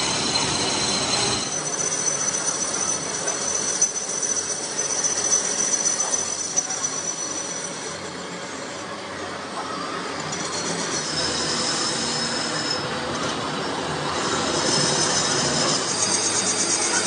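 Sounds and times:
lathe tool squealing on metal: 0:00.0 - 0:08.9, 0:09.5 - 0:17.0
lathe running: 0:00.0 - 0:17.0.

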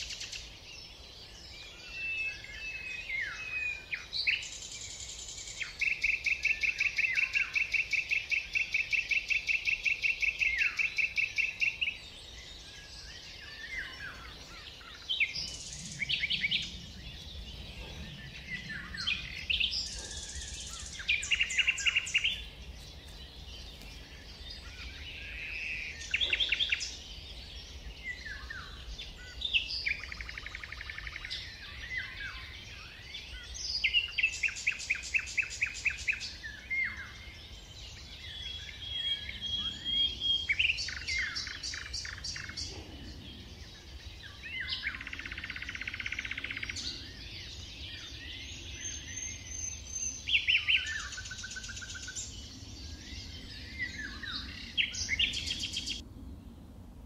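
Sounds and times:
songbirds singing: 0:00.0 - 0:57.0.

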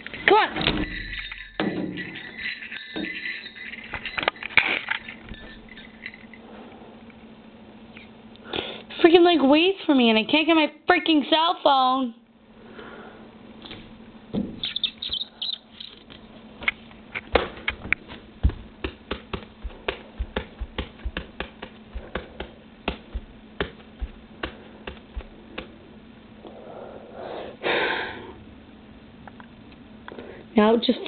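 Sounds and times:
sharp clicks and taps: 0:17.2 - 0:25.7
dull thumps: 0:17.3 - 0:25.8.

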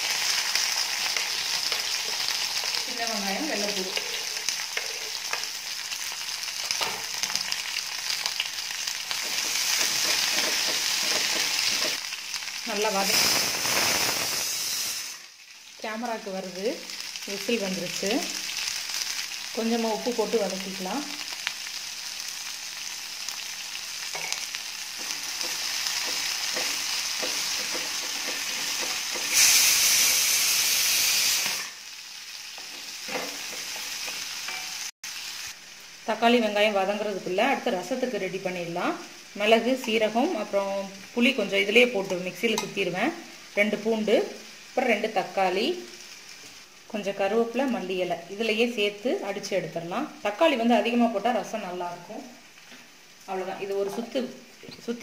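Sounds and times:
food sizzling in hot oil: 0:00.0 - 0:55.0
spatula tapping and scraping pan: 0:09.2 - 0:12.0, 0:25.0 - 0:29.3, 0:32.6 - 0:34.7
loud hiss: 0:13.0 - 0:15.2, 0:29.1 - 0:31.8.

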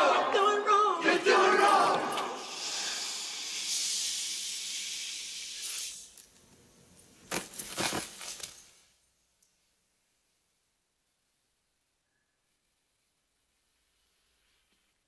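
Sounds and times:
group shouting: 0:00.0 - 0:02.5
steady high hiss: 0:01.0 - 0:07.4.

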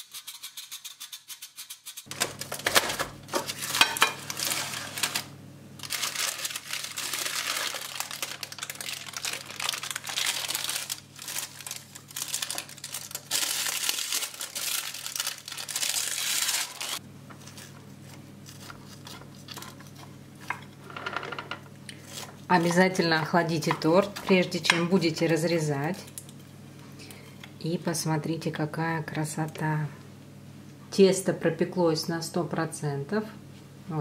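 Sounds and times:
parchment paper crinkling: 0:01.6 - 0:20.2, 0:22.0 - 0:24.5
low steady hum: 0:02.1 - 0:34.0.

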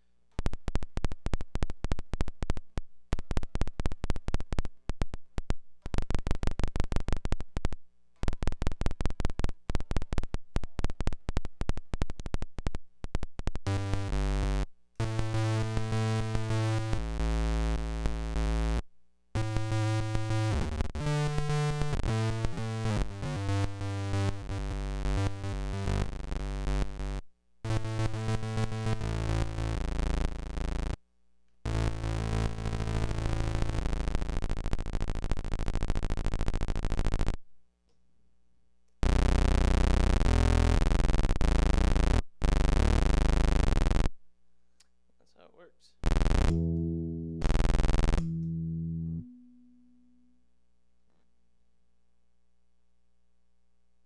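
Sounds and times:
rapid electronic clicks: 0:34.2 - 0:37.4.

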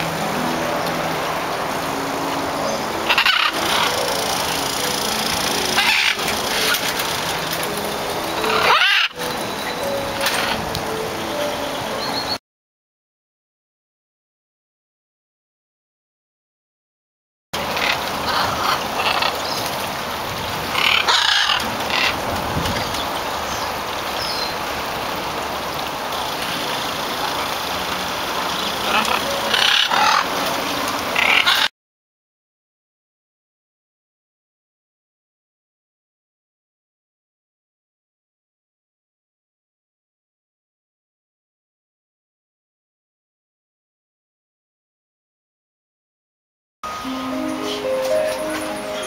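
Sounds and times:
steady background noise: 0:00.0 - 0:12.4, 0:17.6 - 0:31.7
steady background rush: 0:00.0 - 0:12.4
macaw squawking: 0:03.0 - 0:07.6, 0:08.3 - 0:10.7, 0:20.8 - 0:22.2, 0:28.6 - 0:31.7.

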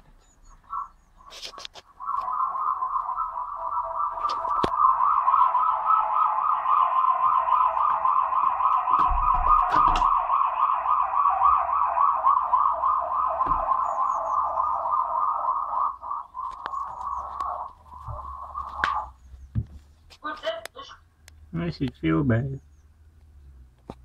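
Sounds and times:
pulsing siren-like warbling tone: 0:00.4 - 0:19.3.

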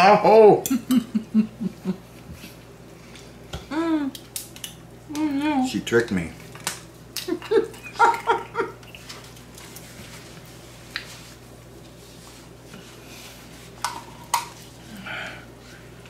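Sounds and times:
person whimpering hums: 0:03.6 - 0:04.2, 0:14.9 - 0:15.5.

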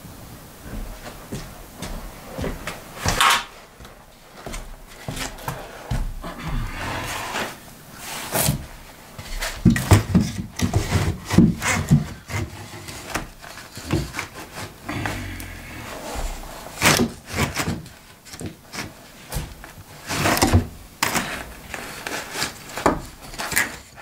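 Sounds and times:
wood knocking and scraping: 0:08.3 - 0:23.9.

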